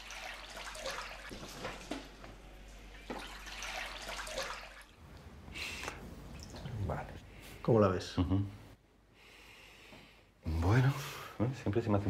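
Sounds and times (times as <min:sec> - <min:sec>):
water sloshing in a tray: 0:00.0 - 0:02.2, 0:02.9 - 0:05.0.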